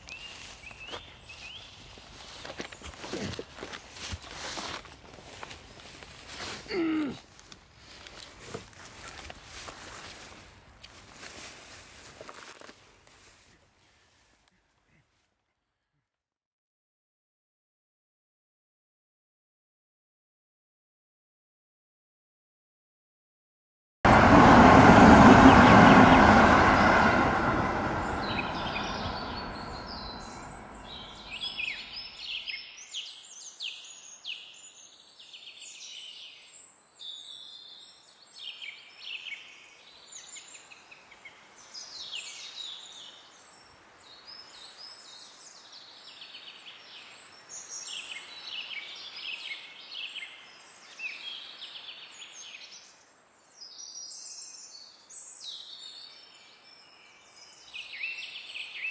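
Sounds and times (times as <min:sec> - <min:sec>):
small birds chirping: 0:00.0 - 0:04.6, 0:28.2 - 0:58.9
passing vehicle rumble: 0:24.1 - 0:32.0.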